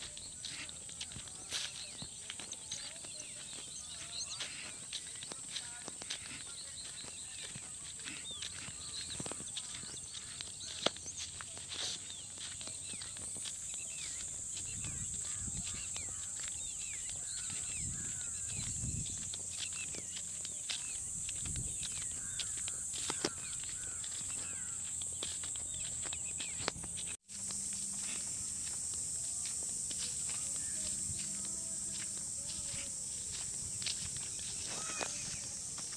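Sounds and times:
bird chirps: 0.0 - 35.9
footsteps: 0.0 - 35.9
high-pitched insect drone: 0.0 - 35.9.

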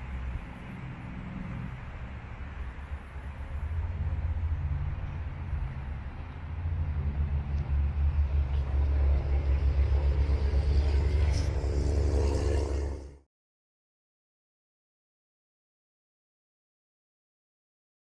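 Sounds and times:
heavy low city rumble: 0.0 - 13.2.

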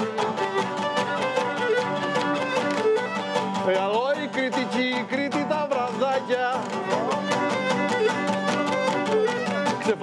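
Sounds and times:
lutes strummed fast: 0.0 - 10.0
man singing: 3.6 - 8.3, 9.0 - 10.0.

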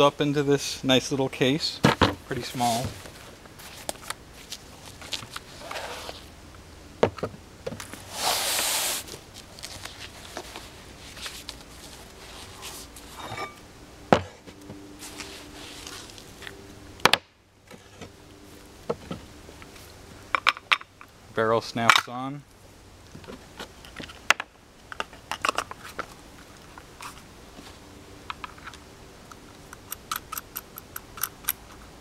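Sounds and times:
metal clicks: 29.7 - 31.8.

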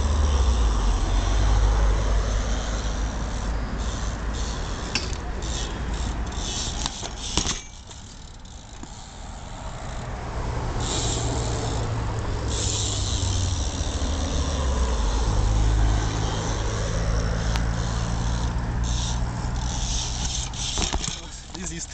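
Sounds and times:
vehicle engine humming: 0.0 - 21.9.

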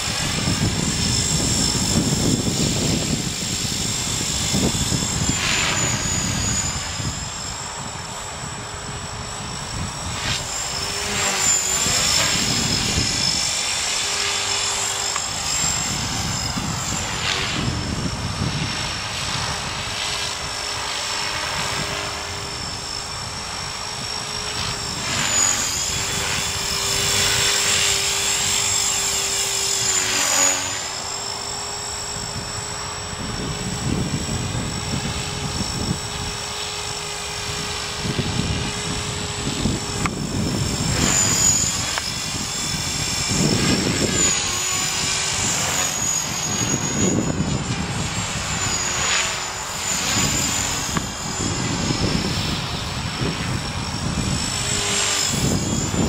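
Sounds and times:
model helicopter whine: 0.0 - 56.0.

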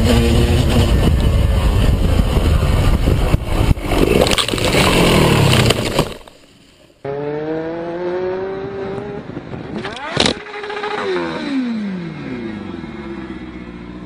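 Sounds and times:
wind noise: 0.0 - 6.1, 8.2 - 10.6
motorcycle accelerating: 0.0 - 6.3, 7.0 - 14.0
motorcycle engine: 0.0 - 14.0
knocks and scraping: 1.9 - 6.9.

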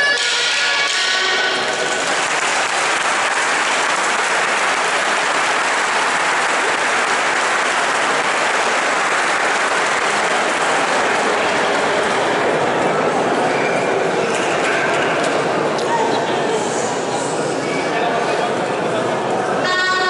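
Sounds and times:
audience applauding: 0.8 - 12.8.

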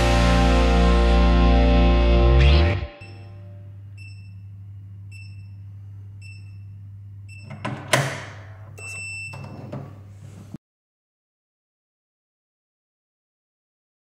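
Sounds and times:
keypad beeps: 5.1 - 5.6, 6.2 - 7.8, 8.8 - 9.6
door rattling: 7.5 - 8.6
lock latch clacking: 7.5 - 8.6.

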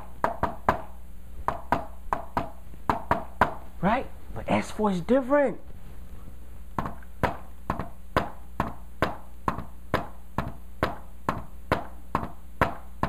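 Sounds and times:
hand tapping on a whiteboard: 0.0 - 3.6, 6.8 - 13.0.

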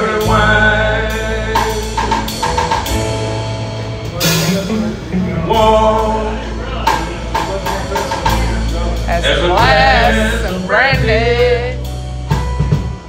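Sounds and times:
man singing: 0.0 - 2.5, 4.0 - 11.9
blues band playing: 0.0 - 13.0.

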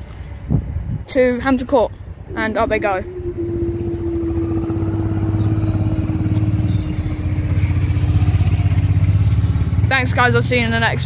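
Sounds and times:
low rumble: 2.1 - 9.8
barrier motor humming: 2.3 - 9.8.

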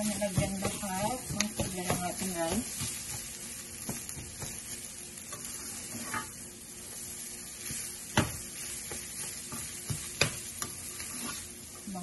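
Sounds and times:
rice sizzling in a pan: 0.0 - 12.0
spatula knocking against pan: 0.1 - 4.7.

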